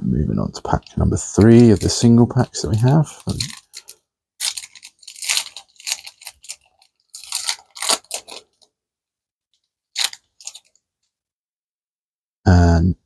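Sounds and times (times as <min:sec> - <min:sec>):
foil wrapper tearing and crinkling: 0:01.2 - 0:08.7, 0:09.9 - 0:10.8.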